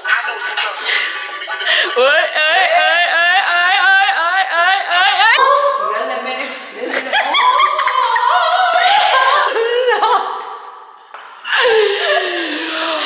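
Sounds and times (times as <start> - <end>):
woman singing wordlessly: 1.8 - 6.4.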